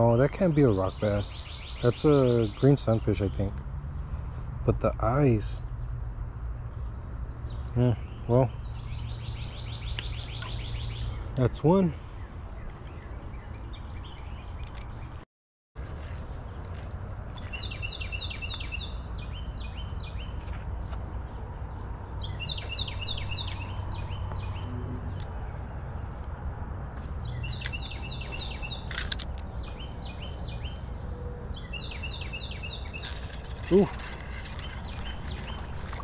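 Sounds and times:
songbird singing: 0.0s - 15.2s, 15.8s - 36.0s
low outdoor rumble: 18.9s - 31.9s.

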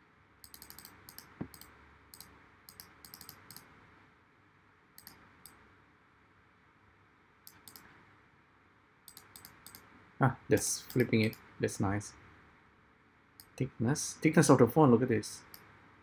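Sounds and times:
low steady hiss: 0.0s - 16.0s
computer mouse clicks: 0.4s - 3.7s, 5.0s - 5.6s, 7.4s - 8.0s, 9.1s - 9.9s, 10.8s - 11.5s, 13.4s - 13.6s.

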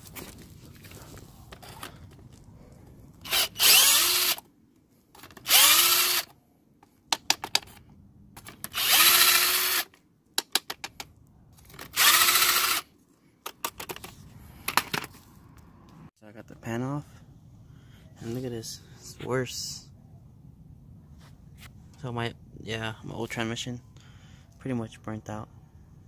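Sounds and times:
cordless drill spinning bolts: 3.2s - 4.4s, 5.2s - 6.3s, 8.4s - 10.0s, 11.7s - 12.9s.

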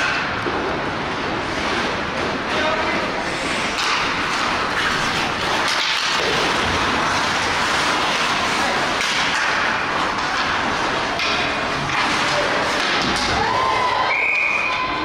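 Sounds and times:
hockey sticks knocking: 0.0s - 0.8s, 3.6s - 13.6s
skate blades scraping ice: 0.0s - 13.7s.

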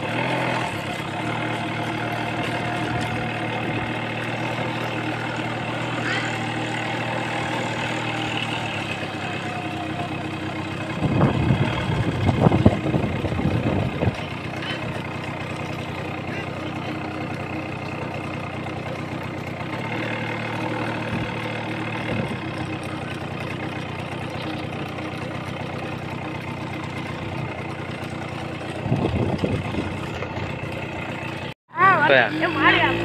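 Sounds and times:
loud uneven noise: 0.0s - 25.0s
vehicle engine running: 0.0s - 33.0s.

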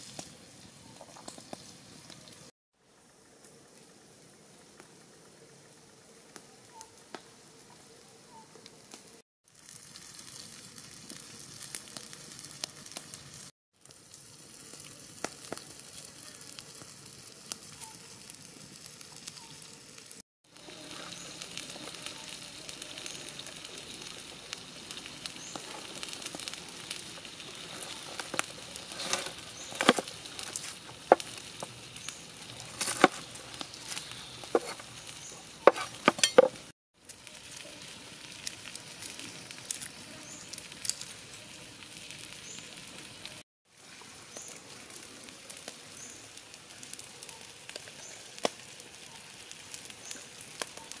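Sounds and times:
eels sizzling on a griddle: 0.0s - 51.0s
wood fire crackling: 0.0s - 51.0s
knife chopping on wooden board: 32.7s - 33.2s, 34.6s - 34.8s, 35.7s - 36.6s.

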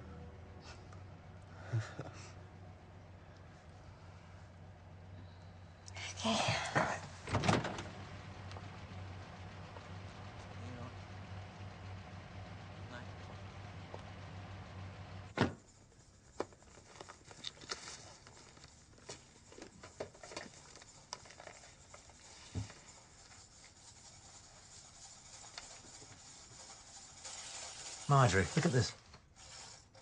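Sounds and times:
small clicks and rustles: 15.6s - 23.4s.

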